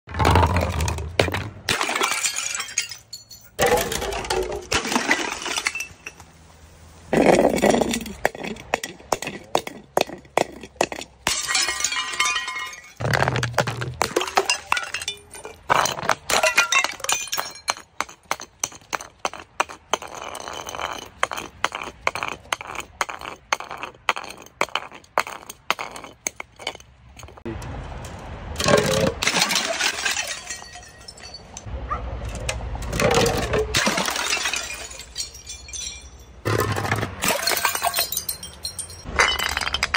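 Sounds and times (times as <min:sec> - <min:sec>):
plastic bottles tumbling down steps: 0:00.1 - 0:06.2, 0:07.2 - 0:27.4, 0:32.8 - 0:38.4.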